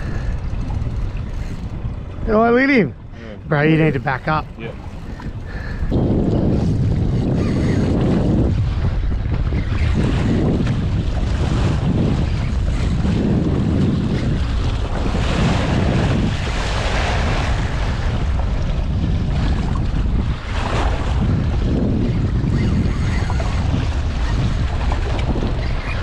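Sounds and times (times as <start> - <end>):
choppy sea water: 0.0 - 26.0
wind buffeting microphone: 0.0 - 26.0.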